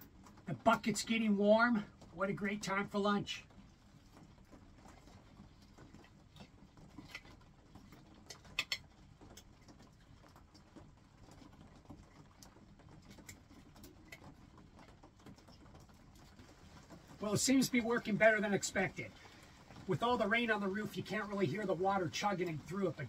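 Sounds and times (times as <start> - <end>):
rain on a roof: 0.0 - 23.0.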